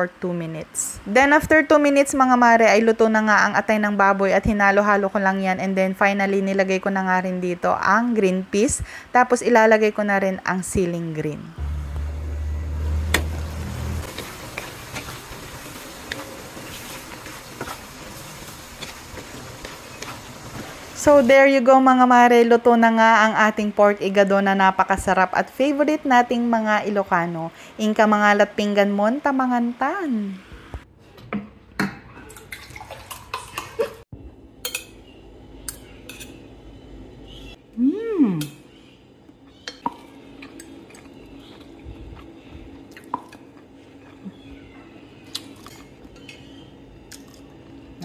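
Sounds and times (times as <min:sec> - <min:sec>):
low hum: 0:10.1 - 0:23.8
food simmering hiss: 0:11.8 - 0:25.2.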